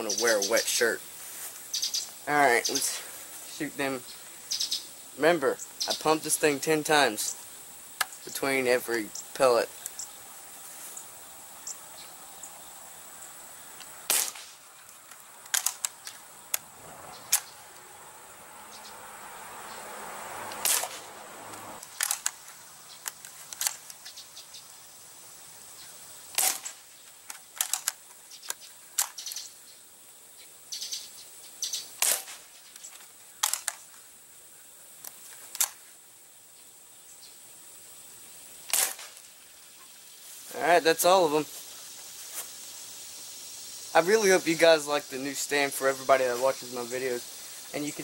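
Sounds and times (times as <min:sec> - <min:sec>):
pellet rifle shots: 0:14.1 - 0:14.6, 0:20.6 - 0:21.1, 0:26.4 - 0:26.8, 0:32.0 - 0:32.4, 0:38.7 - 0:39.2.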